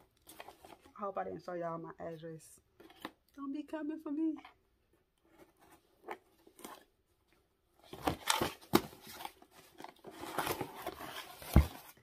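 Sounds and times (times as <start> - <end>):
soft handling sounds: 0.0 - 1.0, 4.4 - 12.0.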